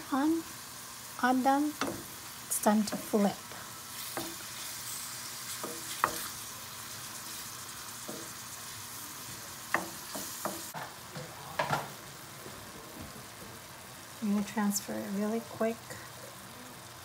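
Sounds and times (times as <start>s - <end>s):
shrimp sizzling in a pan: 0.0s - 12.3s, 13.2s - 17.0s
wooden spoon knocking against pan: 1.8s - 2.1s, 9.7s - 10.8s.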